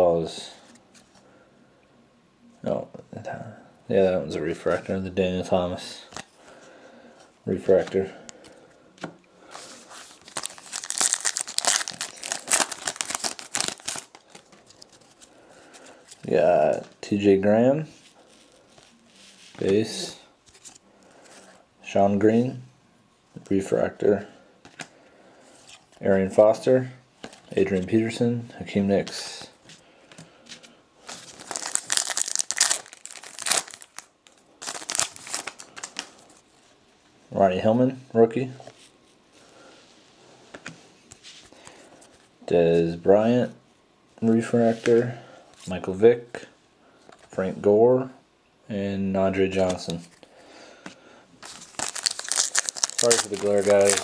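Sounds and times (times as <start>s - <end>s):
foil wrapper tearing and crinkling: 10.0s - 14.9s, 31.1s - 36.2s, 51.4s - 54.0s.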